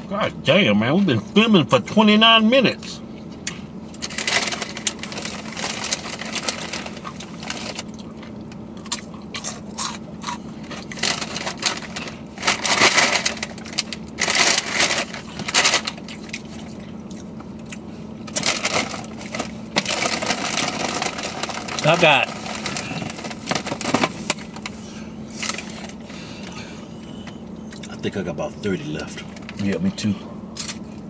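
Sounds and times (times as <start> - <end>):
low hum: 0.0 - 31.0
foil bag crackling: 4.0 - 7.9, 10.6 - 16.6, 18.2 - 24.7
chips crunched and chewed: 4.0 - 23.7.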